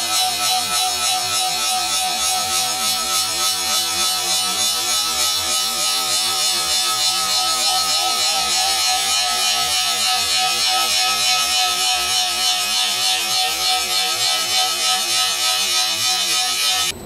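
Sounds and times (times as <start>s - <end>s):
lathe whine: 0.0s - 17.0s.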